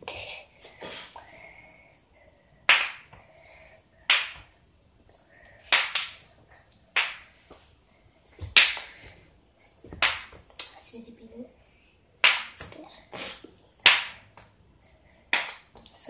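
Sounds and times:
wooden ball clacking onto cups: 2.7s - 3.1s, 4.1s - 4.5s, 5.7s - 6.3s, 6.9s - 7.2s, 9.9s - 10.7s, 12.2s - 12.8s, 13.8s - 14.5s, 15.3s - 15.8s.

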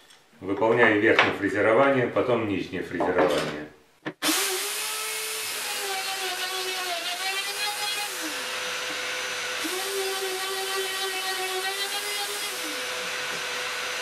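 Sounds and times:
router motor milling wood: 4.2s - 14.0s
vacuum dust extractor: 4.2s - 14.0s.

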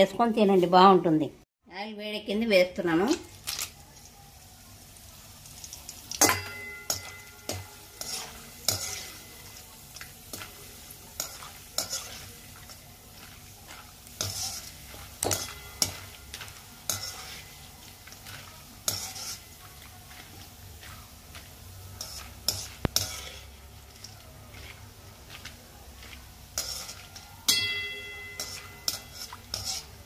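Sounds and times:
frying in hot oil sizzling: 2.4s - 30.0s
skimmer scraping and clanking pan: 5.6s - 30.0s
steel pan ringing: 6.2s - 7.7s, 15.2s - 16.4s, 27.5s - 29.3s.

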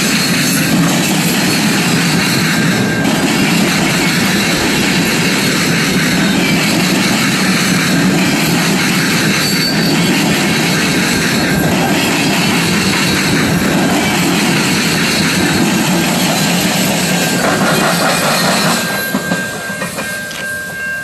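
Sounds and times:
freight train cars rolling past: 0.0s - 21.0s.

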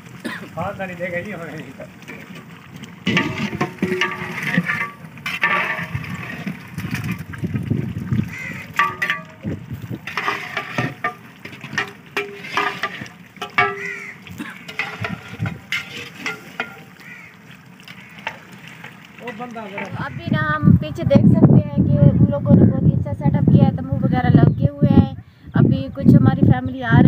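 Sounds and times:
thick gravy sloshing: 0.0s - 20.3s
ladle scraping metal pot: 2.0s - 20.1s
metal clanking on metal: 3.1s - 6.5s, 8.8s - 17.0s
voices talking: 19.2s - 27.0s.

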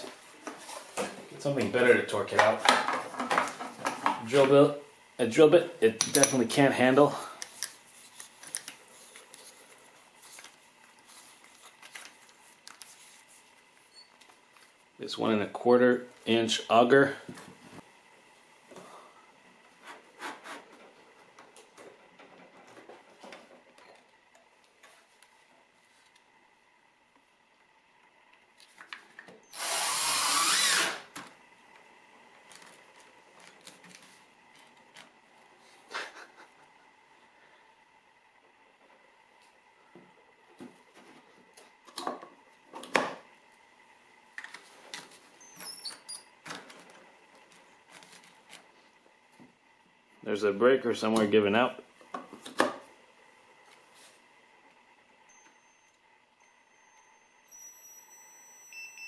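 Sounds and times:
cordless drill whine: 29.4s - 31.1s, 55.3s - 59.0s.

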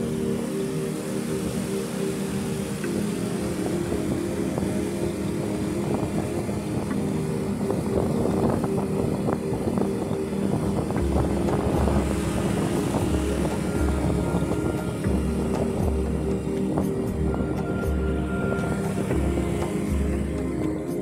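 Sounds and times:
road and wind noise: 0.0s - 21.0s
motorcycle engine running: 6.8s - 21.0s
low pulsing thump: 10.8s - 20.6s.

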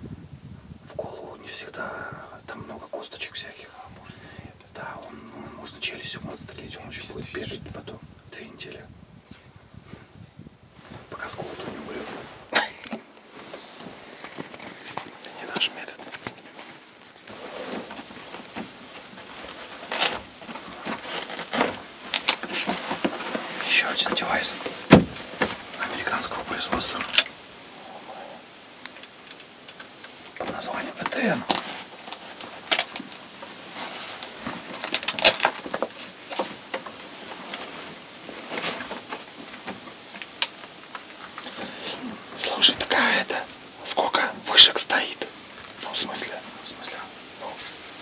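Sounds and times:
clothing rustle: 9.2s - 48.0s
rummaging in a canvas bag: 13.3s - 25.7s.

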